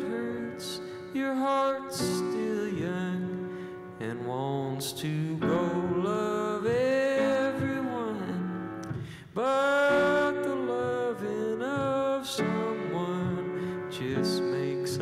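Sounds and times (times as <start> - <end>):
upright piano: 0.0 - 15.0
man singing long held notes: 9.3 - 15.0.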